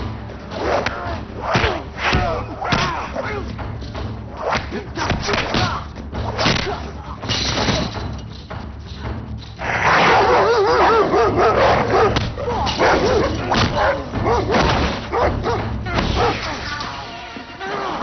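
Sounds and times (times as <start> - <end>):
dogs barking and whining: 9.9 - 16.5.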